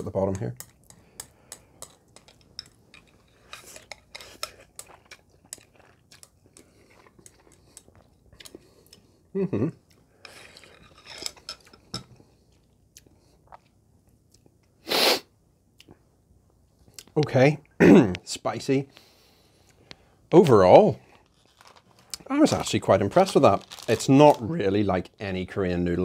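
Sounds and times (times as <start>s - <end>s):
person chewing: 0.6s - 14.7s.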